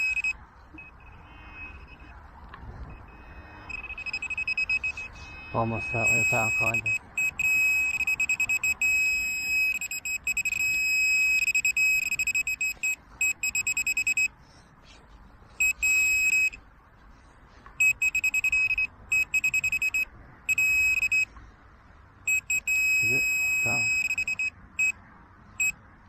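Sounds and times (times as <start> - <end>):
pinpointer probe beeping: 0.0 - 2.1, 2.9 - 14.3, 15.6 - 16.6, 17.8 - 21.3, 22.3 - 25.0.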